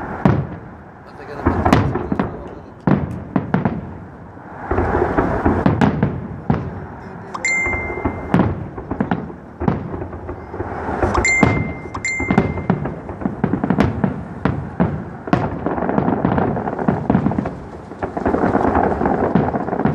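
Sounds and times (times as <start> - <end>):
rumbling echoes: 0.0 - 19.9
firework shells bursting: 7.3 - 19.9
steady high tone: 7.4 - 8.4, 11.2 - 13.0.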